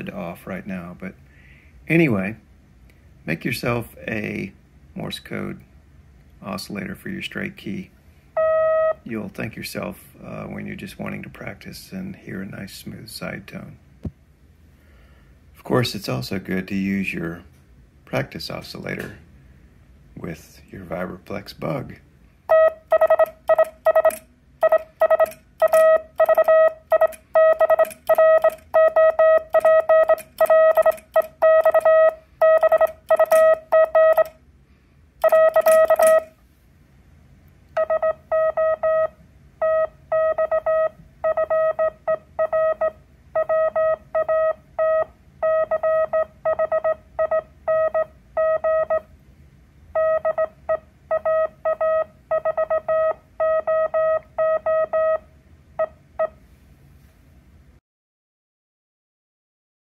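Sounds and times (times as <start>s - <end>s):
morse code oscillator tone: 8.4s - 9.1s, 22.5s - 34.4s, 35.2s - 36.4s, 37.8s - 49.1s, 49.9s - 56.4s.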